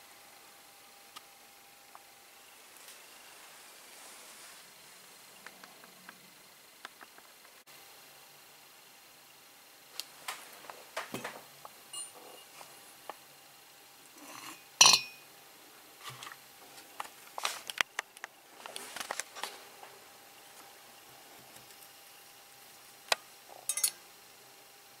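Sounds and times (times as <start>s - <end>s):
light metallic clinks: 11.9s - 12.5s, 23.6s - 24.0s.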